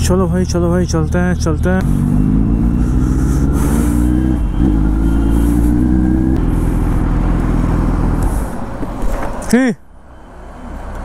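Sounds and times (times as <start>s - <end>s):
motorcycle engine running: 1.3s - 8.2s.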